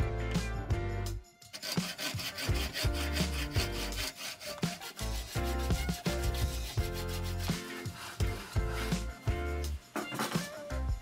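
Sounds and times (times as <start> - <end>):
background music: 0.0 - 11.0
hand saw cutting wood: 1.5 - 9.2.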